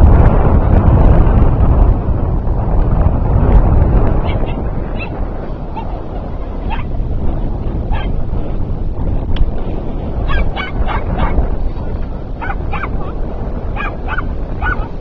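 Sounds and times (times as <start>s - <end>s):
low rumble: 0.0s - 15.0s
small dog yipping: 4.2s - 6.9s, 7.9s - 8.2s, 10.2s - 11.4s, 12.4s - 13.2s, 13.8s - 15.0s.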